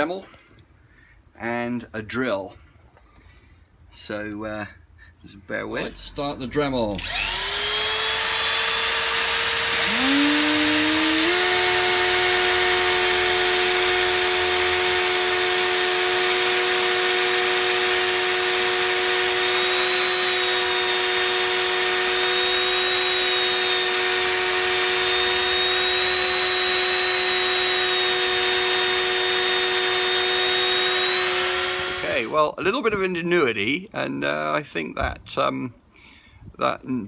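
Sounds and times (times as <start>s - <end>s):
rotary tool whining: 6.9s - 32.4s.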